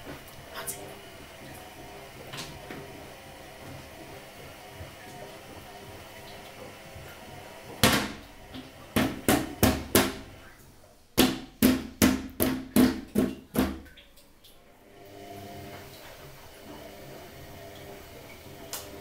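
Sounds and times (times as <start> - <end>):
banging on plastic toilet lid: 7.8 - 8.2, 9.0 - 10.3, 11.2 - 13.9.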